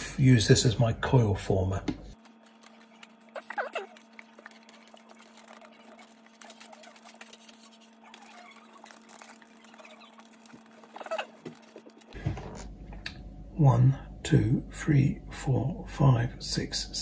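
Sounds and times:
steady low hum: 0:00.0 - 0:17.0
cable scratching on plastic: 0:02.2 - 0:12.2.

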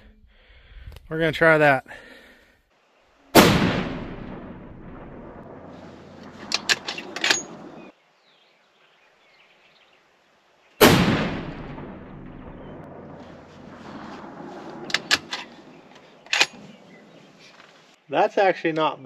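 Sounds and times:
rifle shots: 0:03.4 - 0:07.9, 0:10.8 - 0:15.5.

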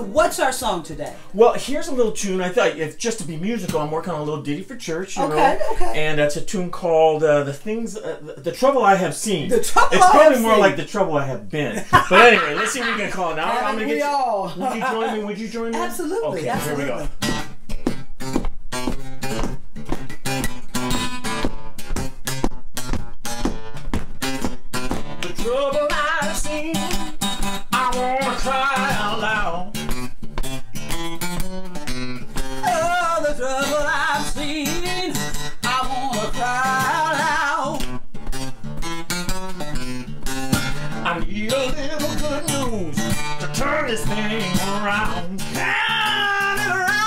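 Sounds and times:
acoustic guitar playing: 0:00.0 - 0:47.0
person singing: 0:27.7 - 0:29.7, 0:32.6 - 0:37.8, 0:41.1 - 0:47.0.

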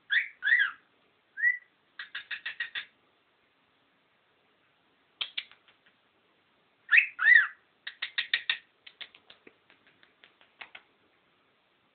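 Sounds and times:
cockatiel chirping: 0:00.1 - 0:00.8, 0:01.4 - 0:02.9, 0:06.9 - 0:09.1
cockatiel whistling: 0:00.1 - 0:00.8, 0:01.4 - 0:02.9, 0:06.9 - 0:08.6.

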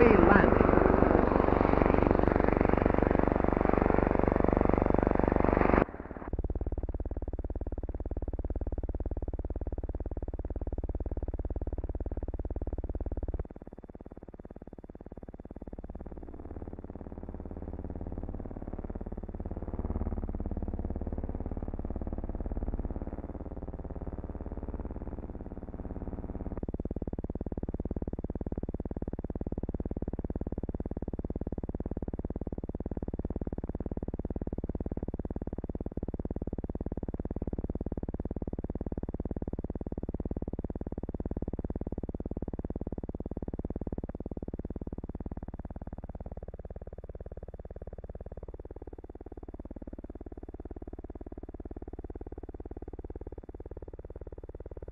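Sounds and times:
piston engines droning: 0:00.0 - 0:06.3
engine buzzing drone: 0:00.0 - 0:13.5.

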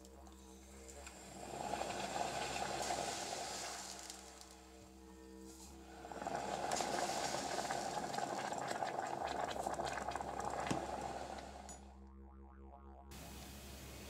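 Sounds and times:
solution bubbling at the boil: 0:01.0 - 0:11.8.

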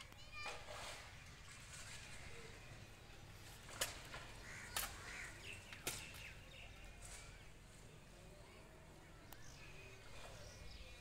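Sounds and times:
faint crow cawing: 0:04.4 - 0:05.4.

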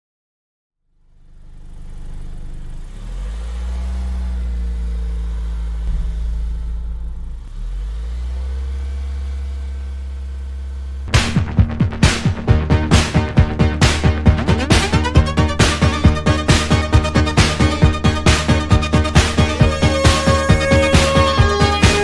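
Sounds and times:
car engine accelerating: 0:00.8 - 0:22.0.

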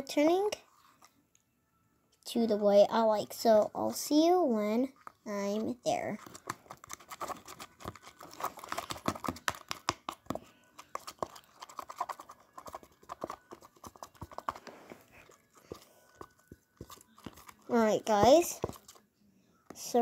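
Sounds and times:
slime squelching and popping: 0:06.2 - 0:14.6.

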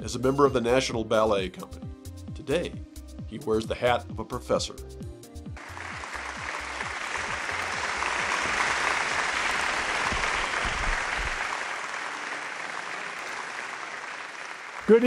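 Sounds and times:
low music: 0:00.0 - 0:10.6
audience applauding: 0:05.6 - 0:15.0.

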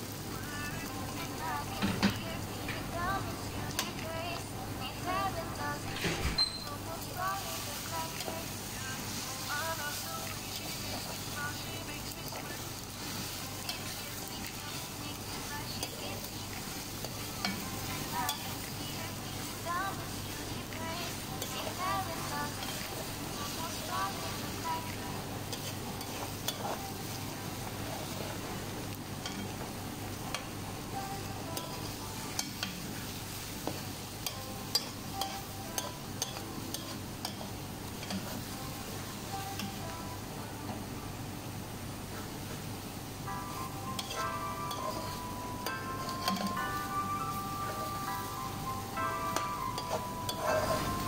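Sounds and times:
eggs sizzling in a pan: 0:00.0 - 0:51.0
metal spoon scraping frying pan: 0:25.5 - 0:27.0
metal spoon clicking on pan: 0:34.2 - 0:38.3, 0:44.0 - 0:45.2, 0:46.0 - 0:46.6.

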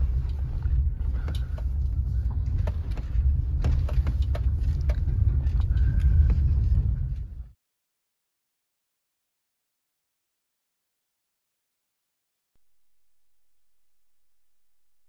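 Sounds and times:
small knocks and rattles: 0:00.0 - 0:06.7
engine and road rumble: 0:00.0 - 0:07.6.

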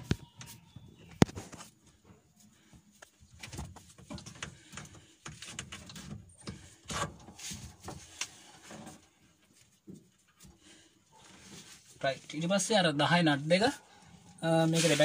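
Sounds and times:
rubber hose rubbing: 0:03.8 - 0:10.6, 0:13.7 - 0:15.0.

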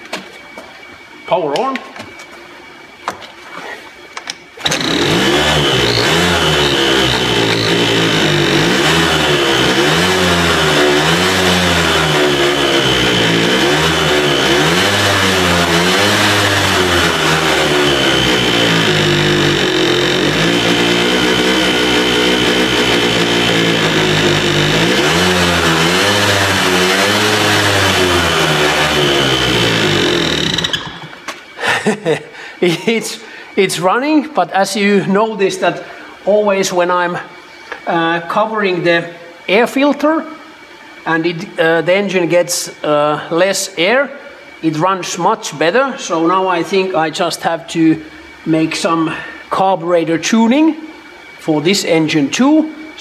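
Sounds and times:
high whine: 0:04.2 - 0:53.0
small engine running unevenly: 0:04.6 - 0:32.0.

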